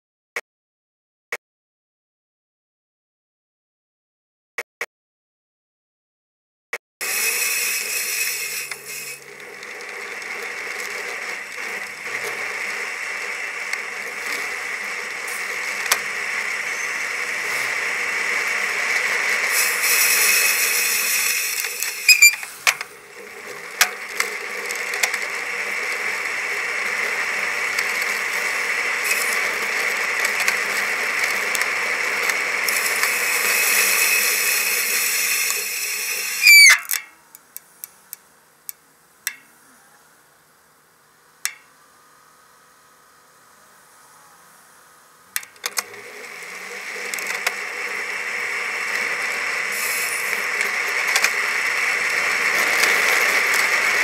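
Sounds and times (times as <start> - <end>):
bicycle tyres hissing on wet road: 7.0 - 36.4, 45.9 - 54.0
bike rattling and ticking: 7.0 - 37.2, 45.4 - 54.0.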